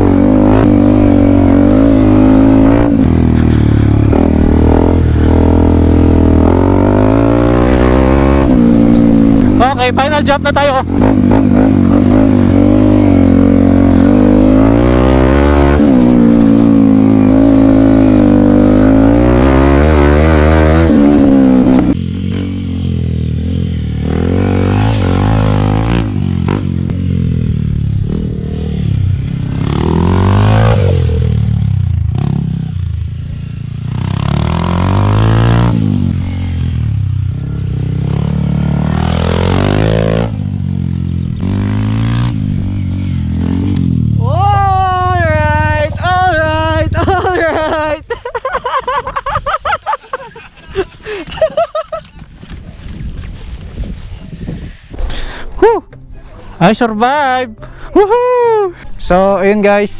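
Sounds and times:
distant dirt bike engine: 0.0s - 48.0s
motorcycle engine revving: 0.0s - 48.0s.

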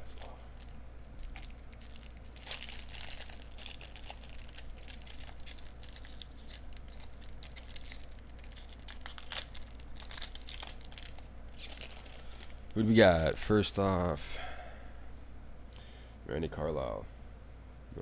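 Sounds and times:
foil wrapper tearing and crinkling: 0.1s - 12.8s.

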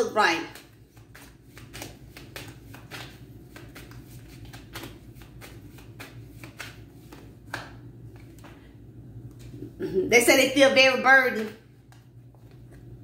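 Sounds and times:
cards shuffling: 0.5s - 8.6s, 11.9s - 13.0s.

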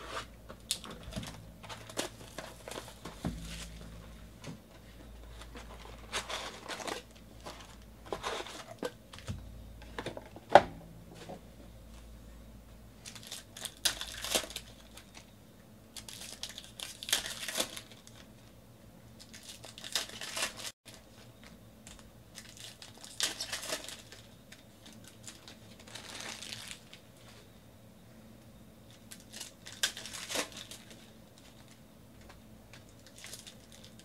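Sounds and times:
foil wrappers tearing and crinkling: 0.1s - 4.2s, 5.4s - 8.9s, 13.0s - 15.3s, 15.9s - 18.3s, 19.2s - 21.0s, 22.3s - 27.0s, 29.0s - 31.7s, 32.8s - 34.0s.

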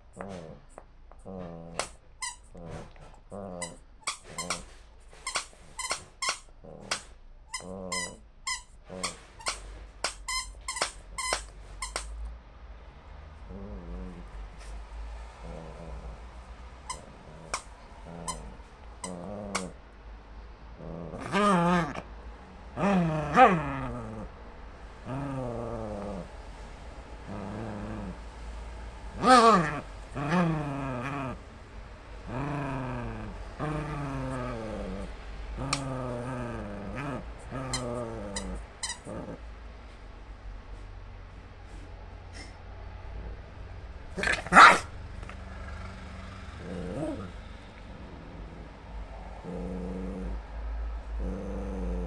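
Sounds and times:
dog growling: 0.1s - 4.7s, 6.6s - 8.2s, 8.8s - 9.3s, 13.4s - 19.8s, 20.8s - 22.1s, 22.7s - 39.5s, 44.1s - 52.0s
squeaky toy squeaking: 3.6s - 6.5s, 7.5s - 12.1s, 37.7s - 39.2s.

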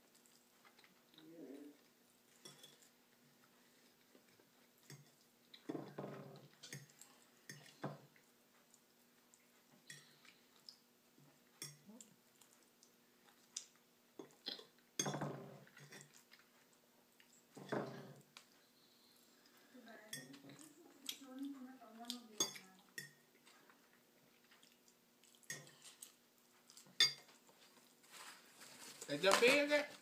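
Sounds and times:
chewing noises: 0.0s - 5.7s, 6.3s - 14.9s, 15.6s - 17.6s, 20.3s - 28.0s.

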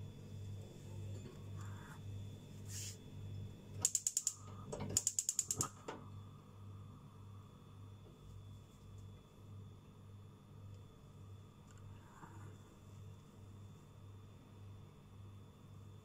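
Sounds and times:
gas igniter clicking rapidly: 3.8s - 4.4s, 5.0s - 5.7s.

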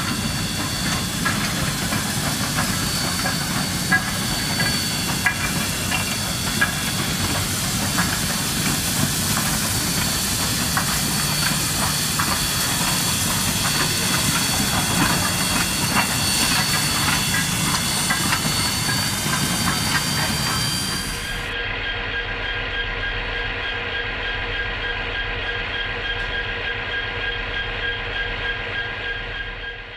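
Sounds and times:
running gear clicks and clanks: 0.0s - 21.2s
steam hissing: 0.0s - 21.6s.

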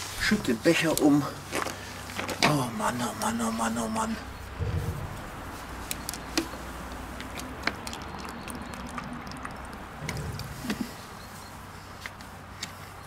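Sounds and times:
low steady rumble: 4.1s - 7.2s, 9.0s - 11.8s.

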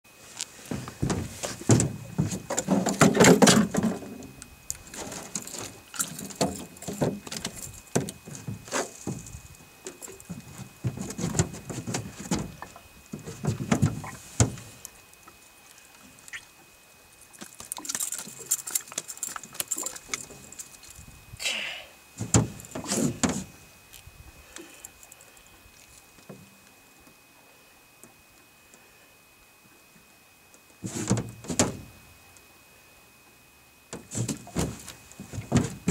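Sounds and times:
fish handling knocks and rustling: 0.5s - 14.8s, 22.2s - 23.5s, 30.8s - 31.9s, 33.9s - 35.9s.

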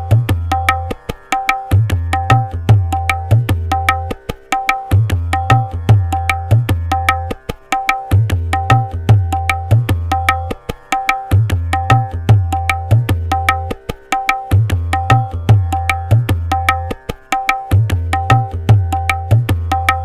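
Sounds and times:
tabla treble drum strokes: 0.0s - 20.0s.

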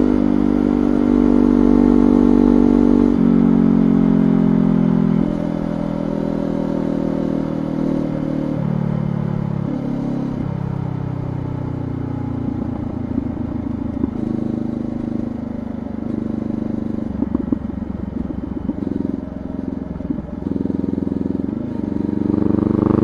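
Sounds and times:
motorcycle engine slowing: 9.1s - 23.0s.

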